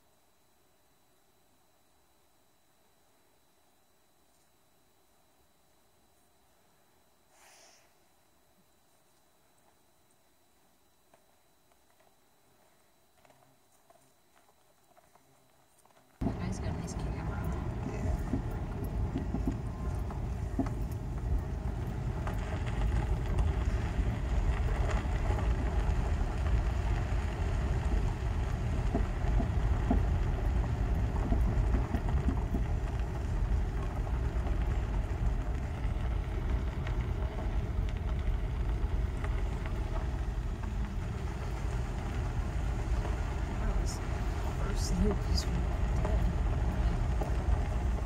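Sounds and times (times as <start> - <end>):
stones crackling under tyres: 11.0 - 48.0
car engine and tyres rumbling: 11.7 - 48.0.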